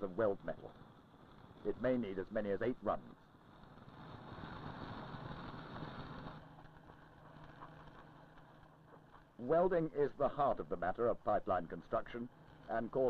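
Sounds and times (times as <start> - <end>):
faint machinery rush: 0.0 - 13.0
low hum: 0.0 - 13.0.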